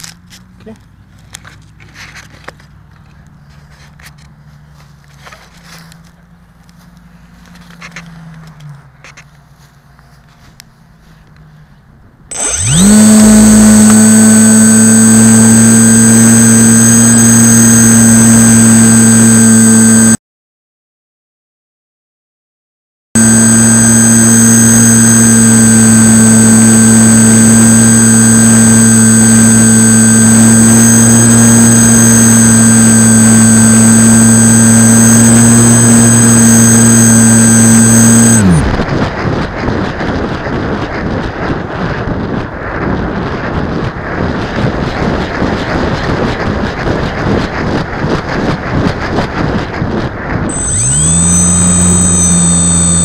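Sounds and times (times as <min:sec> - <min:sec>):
electric motor and propeller whine: 0:12.3 - 0:20.2, 0:23.2 - 0:40.3, 0:50.5 - 0:53.0.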